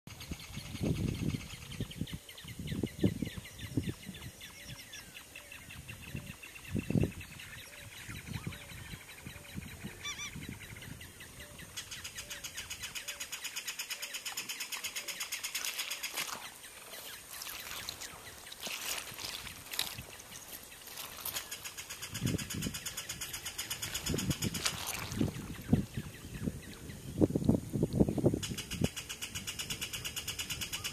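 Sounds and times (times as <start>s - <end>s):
bird rattling call: 11.8s - 18.0s, 21.0s - 24.7s.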